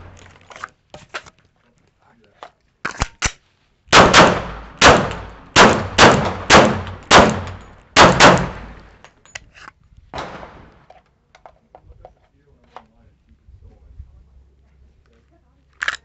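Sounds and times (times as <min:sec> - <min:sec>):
pistol shots echoing: 0:03.9 - 0:09.0, 0:10.2 - 0:10.8.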